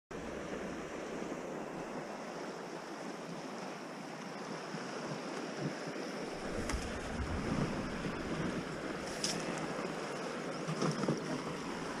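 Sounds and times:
creek rushing over rapids: 0.2 - 10.7.

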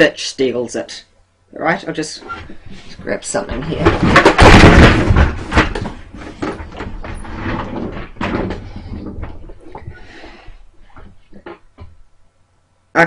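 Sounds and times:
rustling clatter: 2.3 - 12.0
objects knocking and clicking: 2.4 - 12.0.

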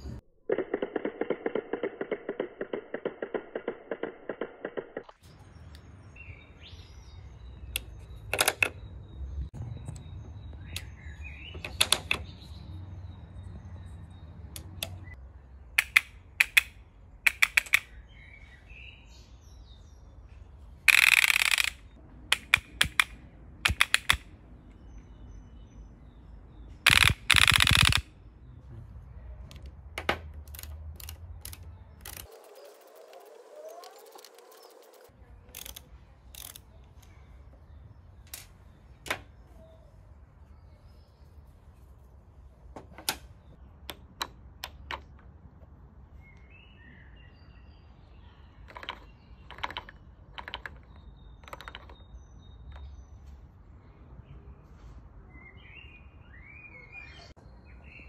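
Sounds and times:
rubber band gun clicking and snapping: 15.8 - 17.9, 20.9 - 24.3, 26.9 - 28.1.

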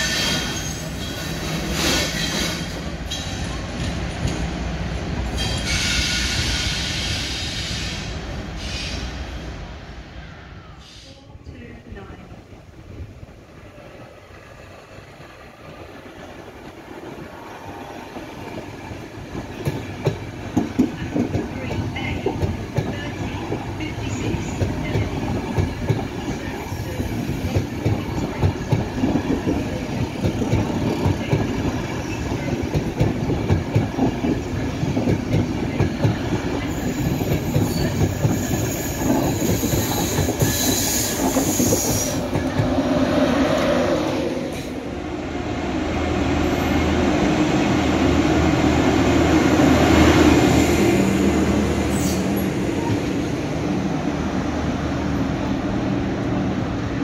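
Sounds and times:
high wheel squeal: 5.4 - 8.0, 36.6 - 42.2.

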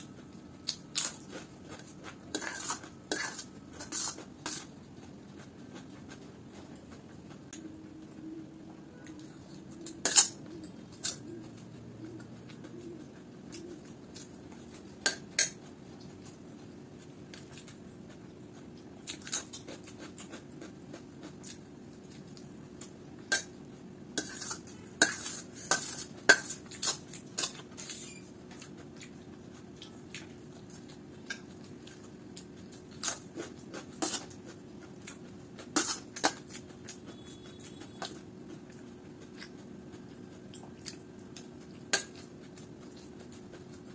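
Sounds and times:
spoon scraping steel plate: 2.3 - 4.7.

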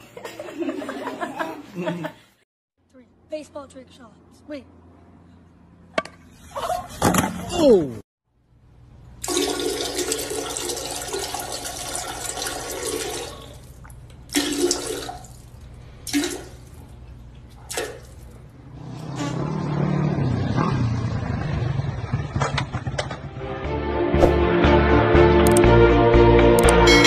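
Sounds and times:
toilet flushing: 9.2 - 15.4
water gurgling as it drains: 9.2 - 16.8.

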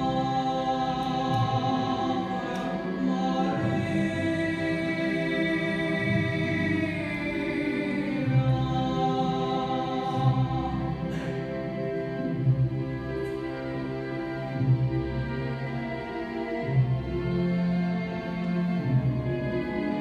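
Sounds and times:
pipe organ sustained chords: 0.0 - 20.0.

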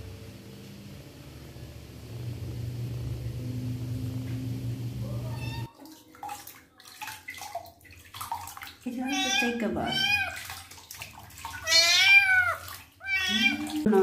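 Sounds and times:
steady low hum: 0.0 - 5.7
kitten meowing: 5.2 - 5.7, 9.1 - 10.4, 11.6 - 13.8
water splashing in a basin: 5.2 - 14.0.

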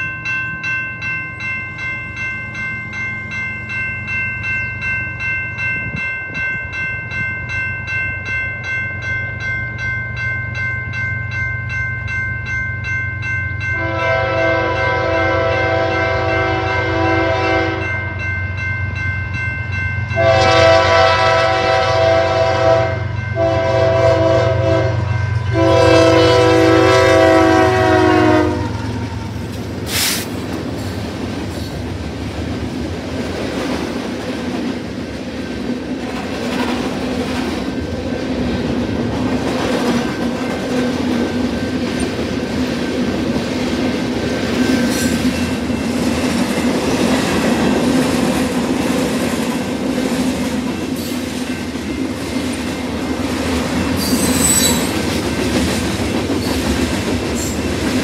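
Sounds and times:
freight train rumbling past: 0.0 - 58.0
train horn blasts: 13.8 - 18.0, 20.2 - 29.3.

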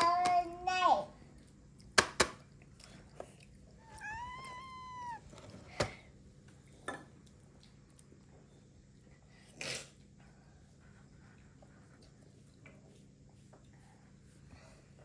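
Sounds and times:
cat meowing: 3.8 - 5.3.

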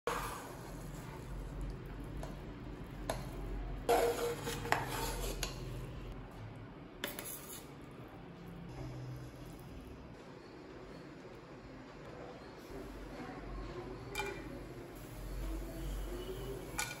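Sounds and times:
metal ladle scraping pot: 3.9 - 6.0.

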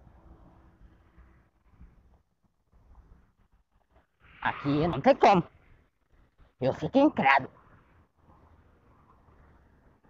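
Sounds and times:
faint low rumble: 0.0 - 4.4.

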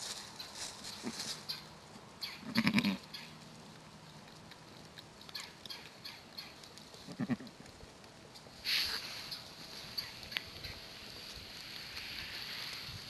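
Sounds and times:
dry leaves crackling: 0.0 - 13.0
sheep bleating: 2.5 - 3.0.

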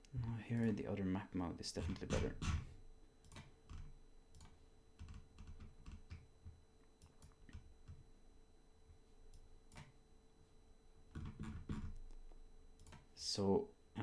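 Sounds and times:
faint steady hum: 0.0 - 14.0
computer mouse clicking: 12.8 - 13.1.

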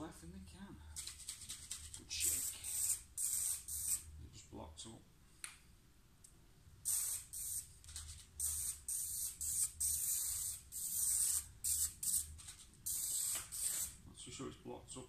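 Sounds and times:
aerosol spray hissing bursts: 2.2 - 4.1, 6.8 - 7.7, 8.4 - 14.0.

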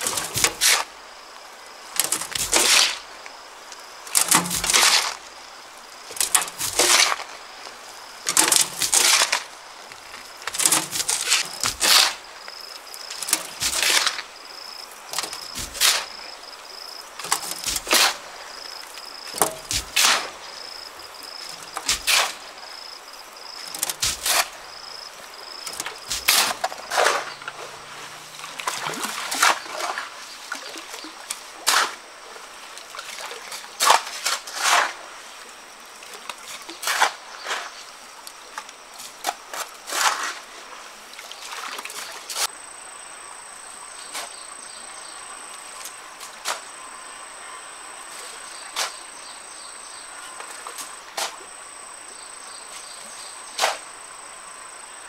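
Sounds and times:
shovel scraping gravel on steel: 0.0 - 0.9, 2.0 - 3.1, 4.2 - 5.3, 6.1 - 7.4, 8.3 - 9.6, 10.4 - 12.3, 13.1 - 14.4, 15.1 - 16.2, 17.2 - 18.4, 19.3 - 20.5, 21.5 - 22.5, 23.7 - 24.7, 25.7 - 28.3, 29.0 - 30.2, 31.6 - 32.0, 33.8 - 35.1, 36.8 - 37.8, 39.5 - 40.5, 44.0 - 44.5, 46.3 - 46.8, 48.1 - 49.1, 52.7 - 53.9.

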